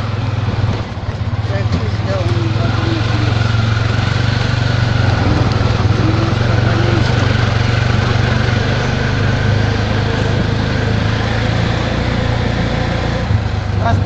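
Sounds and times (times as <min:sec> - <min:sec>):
auto-rickshaw engine droning: 0:00.0 - 0:14.0.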